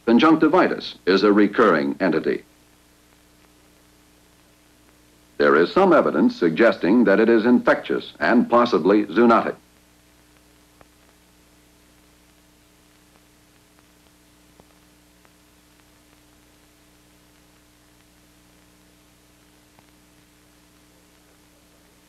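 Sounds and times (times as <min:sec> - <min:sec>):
film soundtrack hiss and hum: 0:00.0 - 0:22.0
faint clicks: 0:09.7 - 0:11.2, 0:11.9 - 0:16.6, 0:17.3 - 0:22.0.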